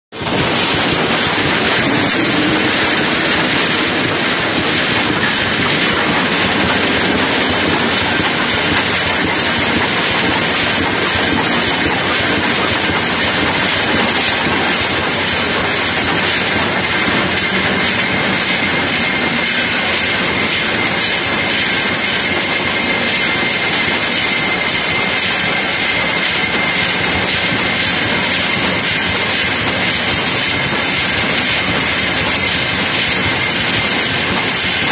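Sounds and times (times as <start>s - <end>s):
welding machine running: 0.1s - 34.9s.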